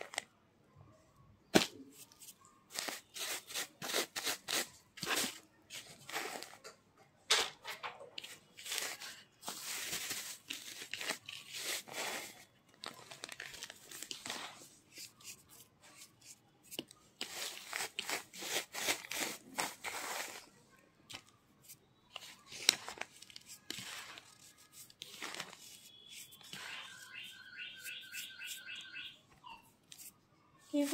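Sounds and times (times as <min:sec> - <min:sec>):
powder crunching in hand: 0:22.2 - 0:27.0.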